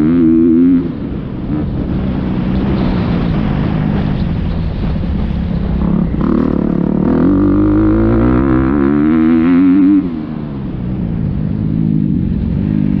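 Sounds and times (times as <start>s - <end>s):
motorbike engine revving: 5.2s - 13.0s.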